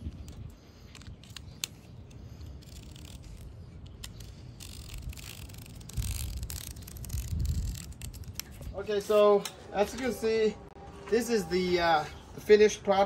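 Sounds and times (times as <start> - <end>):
utility knife cutting mesh: 0.2 - 8.7.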